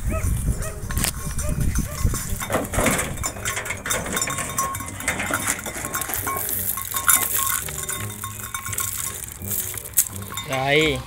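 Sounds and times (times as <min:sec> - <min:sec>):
sheep crunching and chewing: 0:00.4 - 0:11.0
scattered clacks and knocks: 0:01.0 - 0:10.6
straw rustling: 0:04.0 - 0:11.0.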